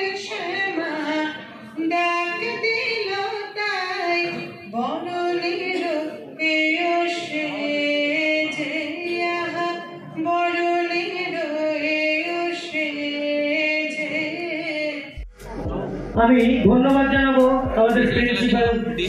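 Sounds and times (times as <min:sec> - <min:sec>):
woman singing into a microphone: 0:00.0 - 0:15.2.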